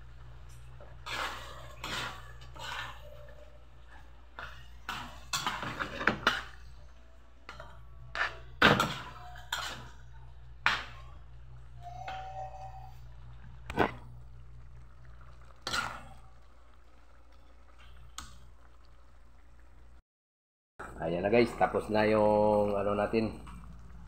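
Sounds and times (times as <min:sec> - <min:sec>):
low steady hum: 0:00.0 - 0:20.0, 0:20.8 - 0:24.0
metal ladle scraping a wok: 0:01.0 - 0:03.5, 0:09.0 - 0:10.0.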